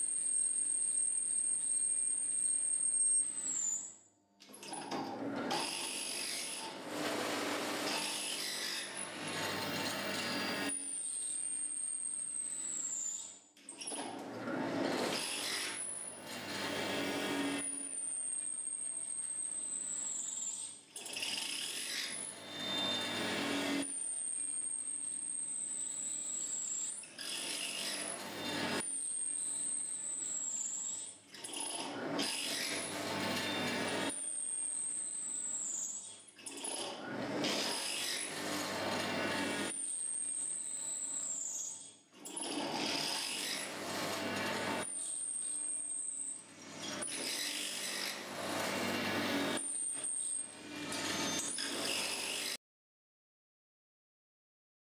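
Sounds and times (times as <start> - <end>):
drill whine: 5.6 - 13.3, 14.9 - 36.8, 37.4 - 52.6
drill bit rasping into steel: 22.4 - 24.5.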